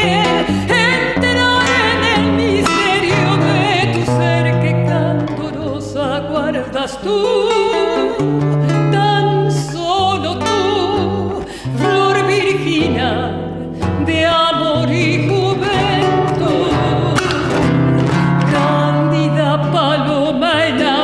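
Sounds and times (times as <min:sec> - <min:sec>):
acoustic guitar: 0:00.0 - 0:21.0
woman singing with vibrato: 0:00.0 - 0:21.0.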